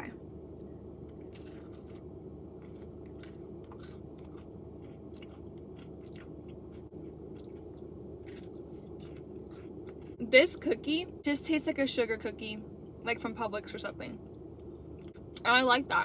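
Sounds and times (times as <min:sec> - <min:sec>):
person chewing cookie: 0:01.1 - 0:10.2.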